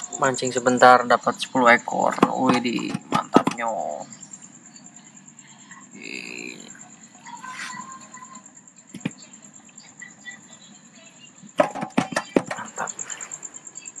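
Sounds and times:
night insects chirring: 0.0 - 14.0
sharp knocks and clatter: 2.1 - 3.7, 11.6 - 12.8.

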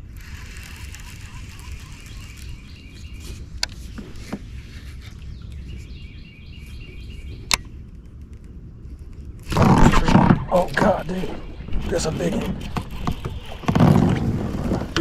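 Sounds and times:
wind rumble on microphone: 0.0 - 15.0
faint bird chirps: 0.4 - 3.5.

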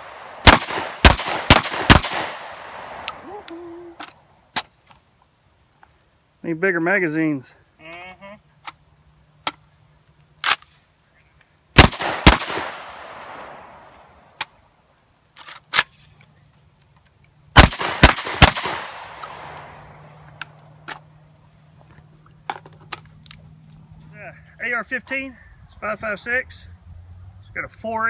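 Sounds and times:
shotgun shots with echo: 0.0 - 3.1, 11.8 - 13.7, 17.6 - 19.6.

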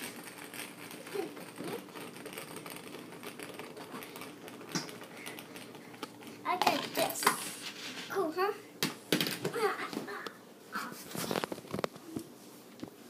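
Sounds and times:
spinning top whirring: 0.0 - 8.2.

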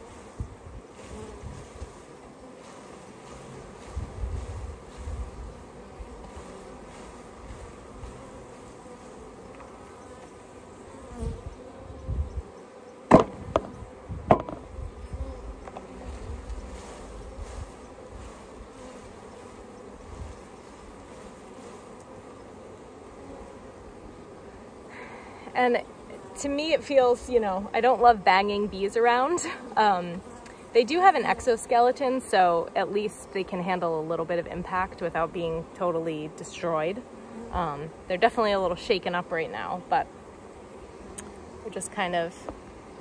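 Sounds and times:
bees buzzing: 0.0 - 43.0
sharp knocks on package: 13.1 - 13.7.

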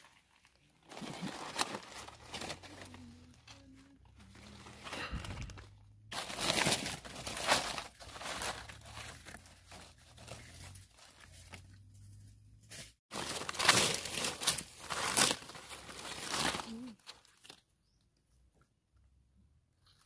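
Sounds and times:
dry leaves crackling and rustling: 0.3 - 11.7, 13.1 - 17.6.

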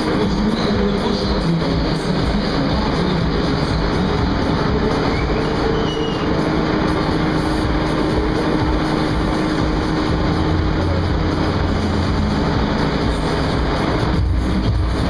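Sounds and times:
faint machine hum: 0.0 - 15.0
thrill ride rumble: 0.0 - 15.0.

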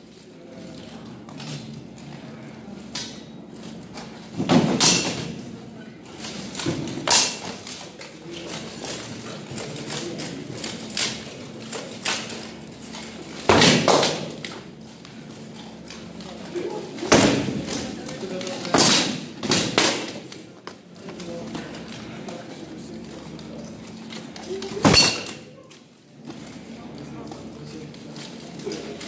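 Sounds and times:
swords clashing on shields and armour: 4.4 - 5.4, 7.0 - 7.6, 13.4 - 14.4, 18.6 - 20.2, 24.8 - 25.5.

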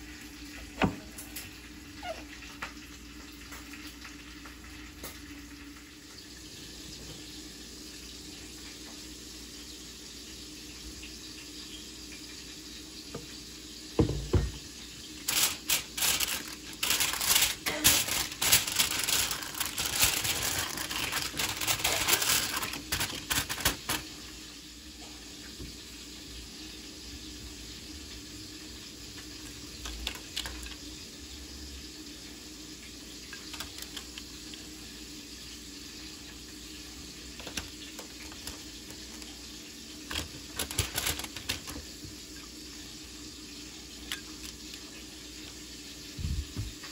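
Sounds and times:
aluminium foil crinkling: 15.2 - 24.4, 29.2 - 31.0, 33.2 - 34.9, 36.8 - 42.0, 43.9 - 45.5.

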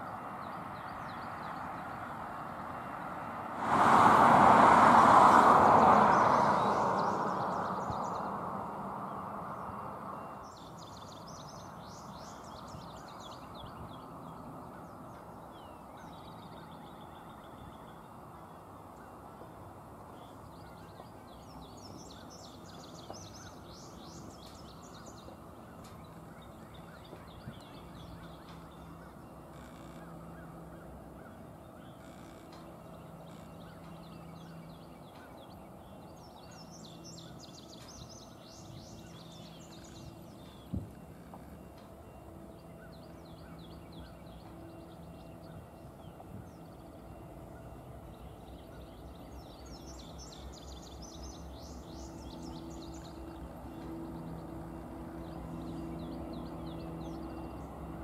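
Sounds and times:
distant diesel locomotives rumbling: 0.0 - 58.0
birds chirping: 5.1 - 58.0.

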